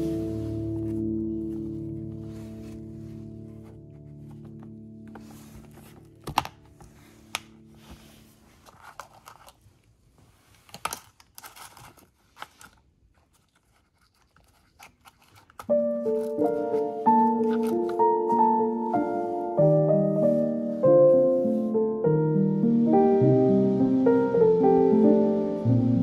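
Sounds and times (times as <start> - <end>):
background music: 0.0 - 8.2, 15.7 - 26.0
crinkling and tearing handling noises: 0.6 - 19.2.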